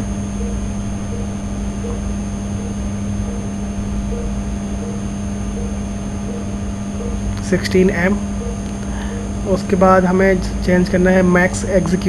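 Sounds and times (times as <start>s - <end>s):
electrical hum with hiss: 0.0s - 12.0s.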